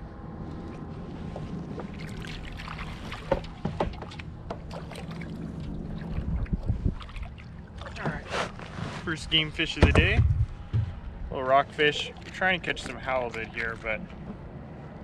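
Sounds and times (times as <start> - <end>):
water noise: 0.0 - 15.0
wind: 0.0 - 15.0
sharp knocks: 9.8 - 11.1
heavy low thumps: 9.8 - 11.4.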